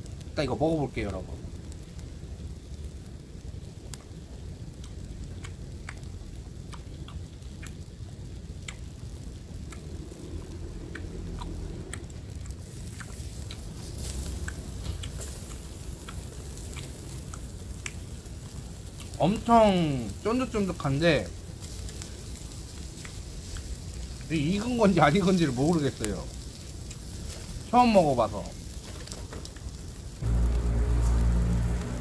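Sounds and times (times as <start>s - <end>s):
charcoal grill sizzling: 0.0s - 32.0s
close-up chewing: 3.9s - 19.2s, 21.4s - 24.3s.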